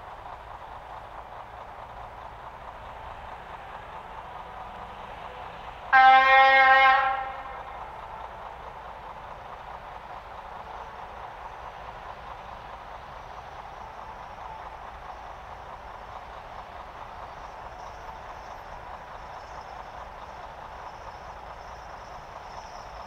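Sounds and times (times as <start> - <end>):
locomotive horn blast: 5.9 - 7.8.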